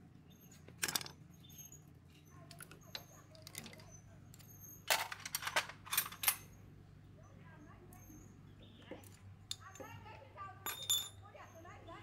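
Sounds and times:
scraping of metal parts: 0.4 - 6.6
metal parts clatter: 0.8 - 1.2, 4.7 - 6.6.

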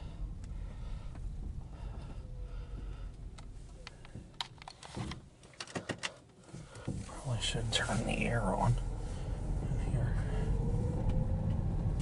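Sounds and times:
car cabin rumble: 6.6 - 12.0.

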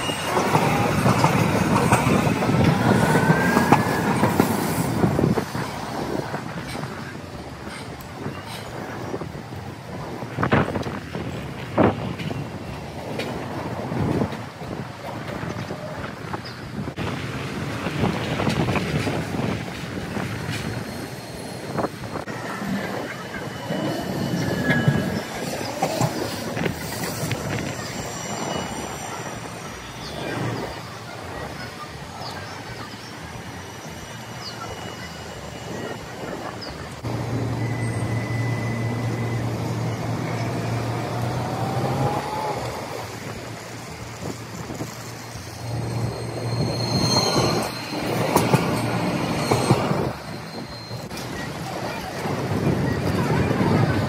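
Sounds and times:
wheel squeal: 0.0 - 4.9, 20.4 - 42.7, 44.2 - 54.0
tram rolling rumble: 0.0 - 54.0.

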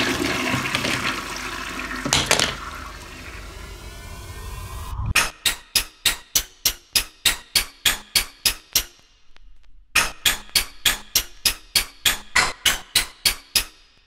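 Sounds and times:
sharp bright rhythmic clicks: 5.2 - 14.0.

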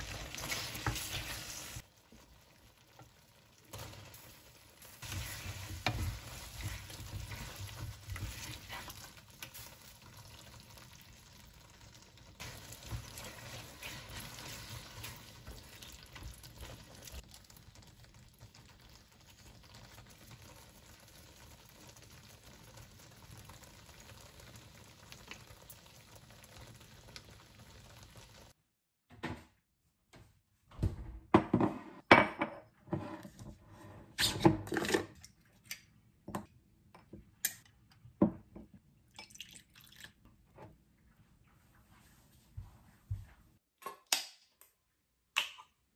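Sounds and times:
sauce sizzling: 0.0 - 28.6
spatula stirring pasta in pan: 0.0 - 28.6.

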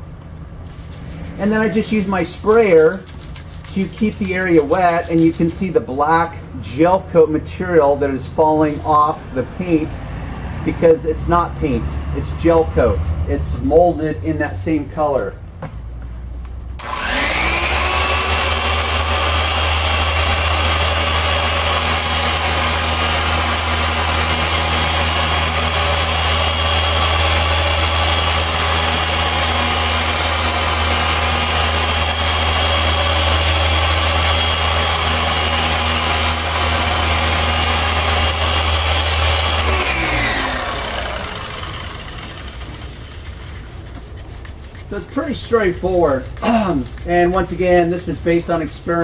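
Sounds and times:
power sander running: 0.9 - 5.5, 16.8 - 49.0.

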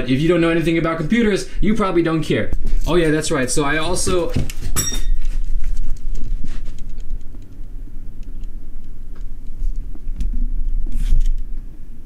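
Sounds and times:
camera handling rumble: 4.2 - 11.6.

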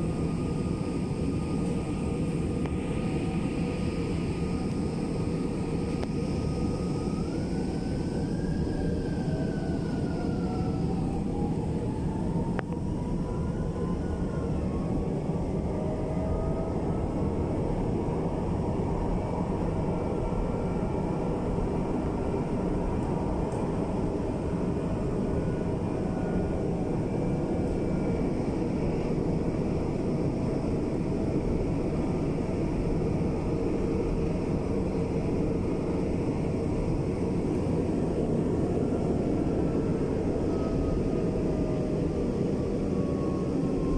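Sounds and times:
train rumble: 0.0 - 43.9.

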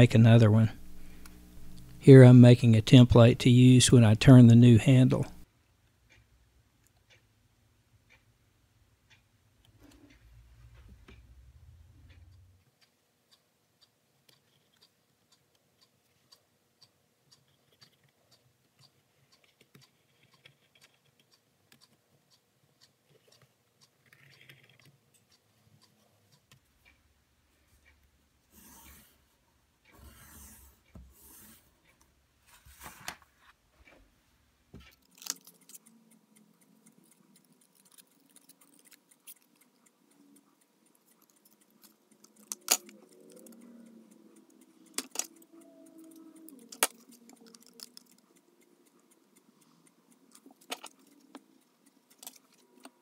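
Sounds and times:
pencil scratching: 28.5 - 29.2, 30.0 - 31.7.

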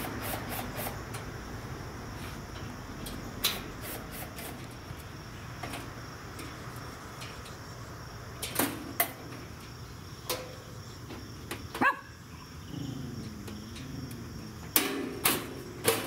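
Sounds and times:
sheet-metal knocks and clanks: 14.7 - 16.0.

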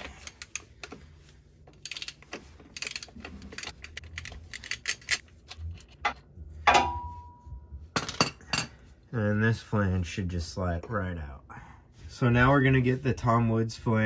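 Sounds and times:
metal tools clinking and rattling: 1.8 - 7.1.

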